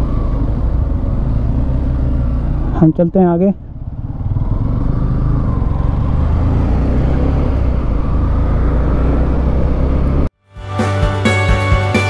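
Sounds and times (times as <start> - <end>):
motorcycle engine running: 0.0 - 10.3
wind and road noise: 0.0 - 10.3.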